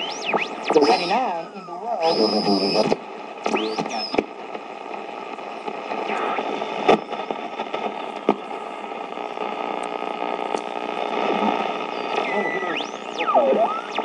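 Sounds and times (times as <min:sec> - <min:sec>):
radio tuning whistles sweeping up: 0:00.0 - 0:04.3, 0:05.9 - 0:08.0, 0:11.1 - 0:14.0
radio static hiss: 0:00.0 - 0:14.0
radio control clicks: 0:02.9 - 0:14.0.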